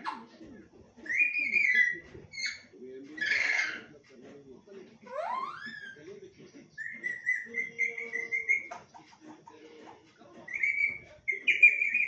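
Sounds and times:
soft low chattering: 0:00.0 - 0:12.0
parakeet whistled calls: 0:01.1 - 0:03.9, 0:05.1 - 0:06.0, 0:06.8 - 0:08.8, 0:10.4 - 0:12.0.

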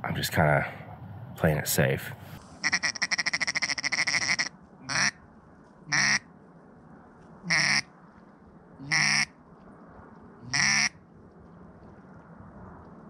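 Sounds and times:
duck quacking: 0:02.6 - 0:05.2, 0:05.9 - 0:06.3, 0:07.4 - 0:07.9, 0:08.8 - 0:09.3, 0:10.5 - 0:11.0.

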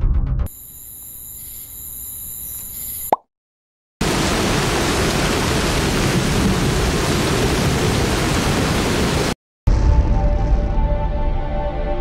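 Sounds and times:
music: 0:00.0 - 0:00.5, 0:09.7 - 0:12.0
loud static hiss: 0:00.5 - 0:03.1.

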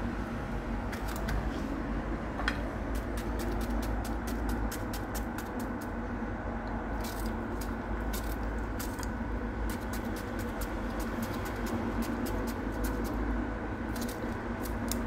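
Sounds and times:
steady low hum: 0:00.0 - 0:15.0
knife cutting cucumber: 0:02.9 - 0:05.9, 0:09.7 - 0:13.2.

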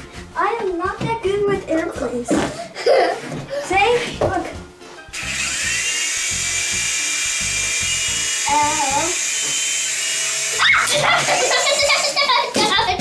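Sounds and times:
child's voice: 0:00.4 - 0:04.6, 0:08.5 - 0:09.2, 0:10.6 - 0:13.0
toy helicopter motor whine: 0:05.1 - 0:12.6.

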